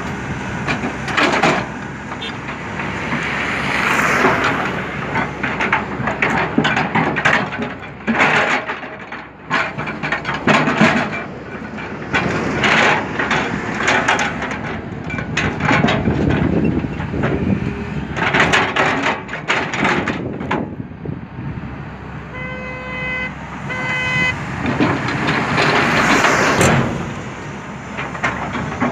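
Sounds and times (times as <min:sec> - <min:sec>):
excavator diesel engine under load: 0:00.0 - 0:28.9
vehicle horn: 0:02.2 - 0:02.4, 0:22.3 - 0:24.4.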